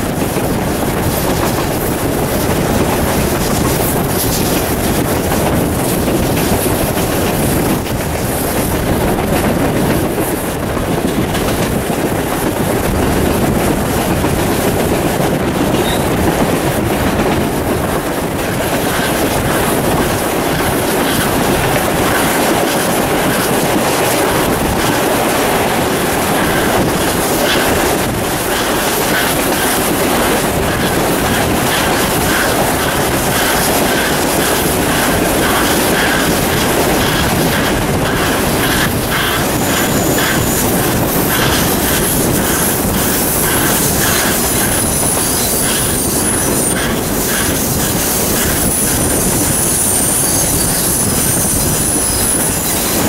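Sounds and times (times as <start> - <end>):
train wheels rumbling on rail: 0.0 - 53.0
wheels clicking over rail joints: 0.0 - 53.0
wheel squeals: 15.7 - 16.2, 28.4 - 53.0.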